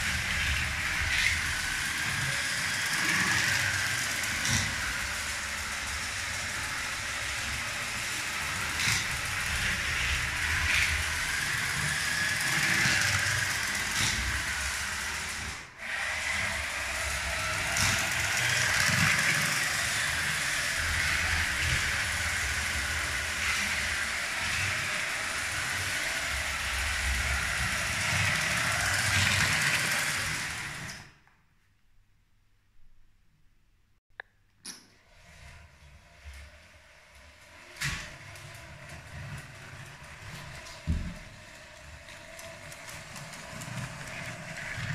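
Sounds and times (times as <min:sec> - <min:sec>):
toy train motor whirring: 0:00.0 - 0:31.2, 0:35.0 - 0:44.9
wheels clicking on rails: 0:00.0 - 0:31.2, 0:35.0 - 0:44.9.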